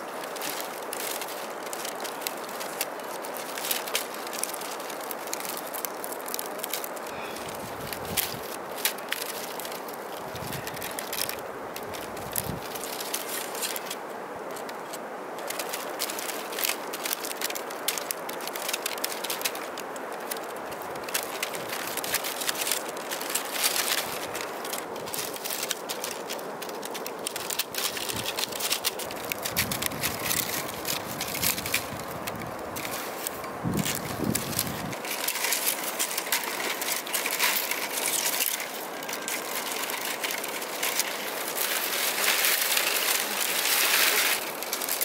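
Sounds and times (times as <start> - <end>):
bamboo strips crackling: 0.0 - 45.0.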